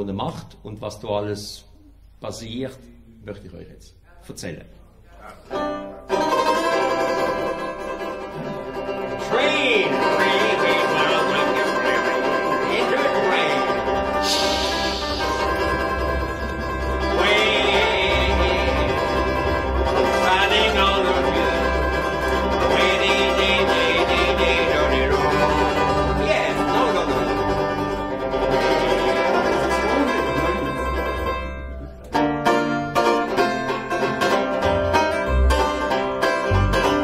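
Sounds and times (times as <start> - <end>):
banjo plucking: 5.2 - 37.0
double bass: 5.3 - 37.0.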